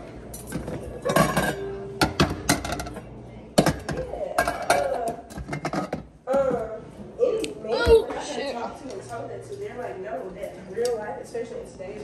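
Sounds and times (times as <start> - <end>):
metal pots and pans clanking: 0.3 - 3.0, 3.6 - 6.1.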